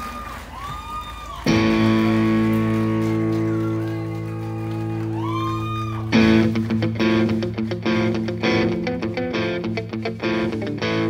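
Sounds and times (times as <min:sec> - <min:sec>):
guitar and bass chord ringing: 0:01.5 - 0:04.3, 0:06.0 - 0:11.0.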